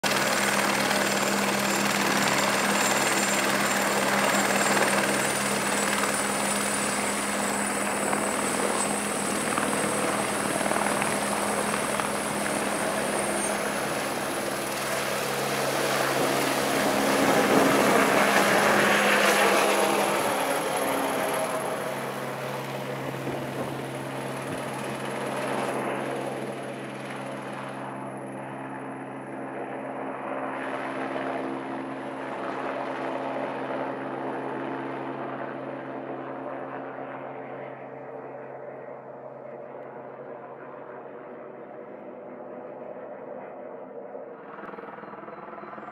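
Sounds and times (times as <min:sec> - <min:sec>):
helicopter taking off: 0:00.0 - 0:38.0, 0:40.9 - 0:45.9.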